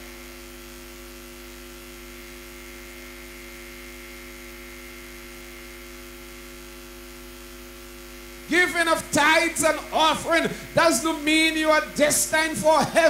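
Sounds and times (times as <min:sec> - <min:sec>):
electrical mains hum: 0:00.0 - 0:13.0
constant hiss: 0:07.8 - 0:13.0.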